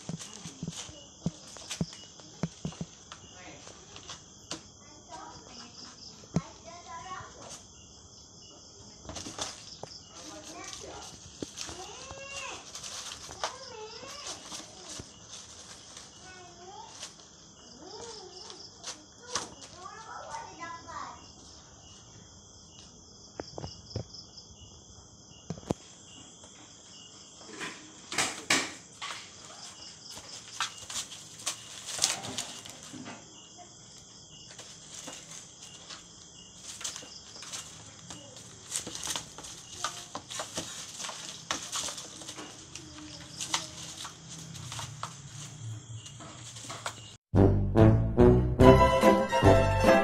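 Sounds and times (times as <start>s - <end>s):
shredded paper rustling: 0.0s - 4.2s, 9.1s - 20.5s, 29.0s - 33.0s, 33.9s - 47.2s
insects chirring: 0.0s - 47.3s.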